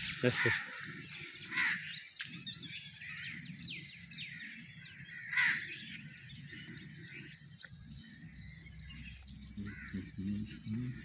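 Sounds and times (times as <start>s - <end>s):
birds chirping: 0.0s - 11.0s
low rumble: 7.8s - 11.0s
harsh bird call: 9.0s - 11.0s.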